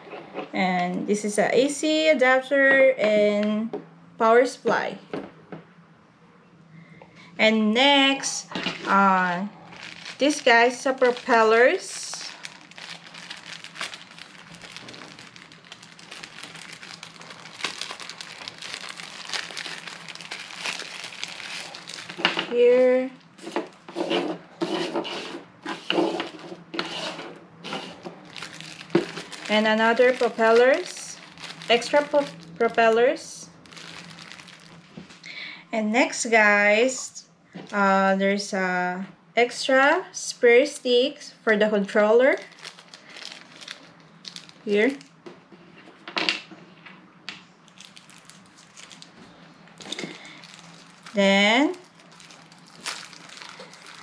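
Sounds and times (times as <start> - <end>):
plastic packets rustling and scraping: 8.6 - 33.0, 33.6 - 35.2, 42.4 - 45.1, 47.7 - 54.0.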